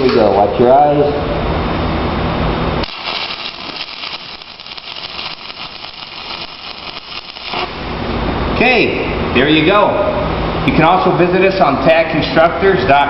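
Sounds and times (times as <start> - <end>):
steady low hum: 0.0 - 13.0
welding arc crackling: 2.8 - 8.0.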